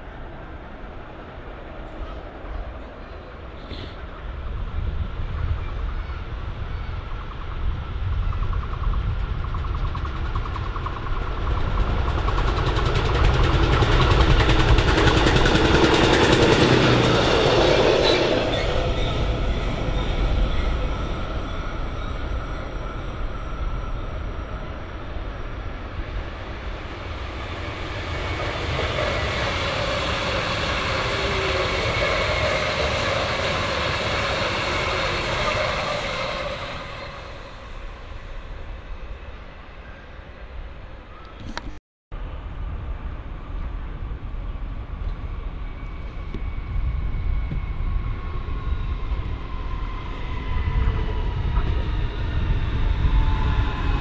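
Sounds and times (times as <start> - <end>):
train passing with heavy rumble: 0.0 - 41.4, 42.1 - 54.0
wheels on rails: 7.2 - 39.3.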